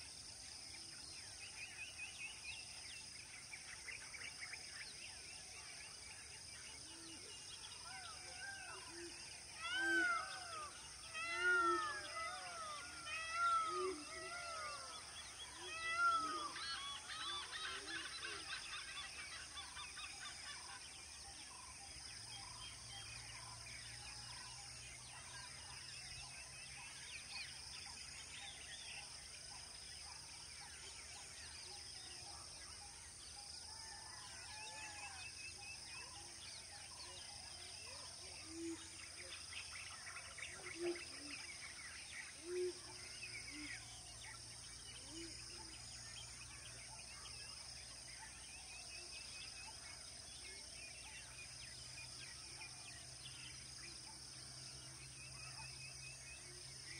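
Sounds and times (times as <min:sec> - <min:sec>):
high insect drone: 0:07.8 - 0:21.0.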